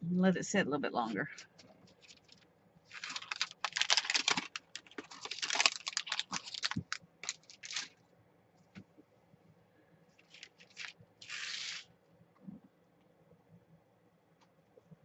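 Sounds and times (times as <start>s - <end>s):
thin paper rustling and crinkling: 1.8s - 8.0s, 10.2s - 11.9s.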